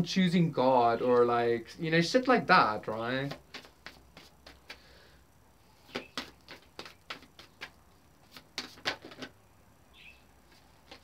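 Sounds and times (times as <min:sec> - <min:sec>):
cards being shuffled: 0:02.9 - 0:04.9, 0:05.9 - 0:09.4, 0:10.5 - 0:11.0.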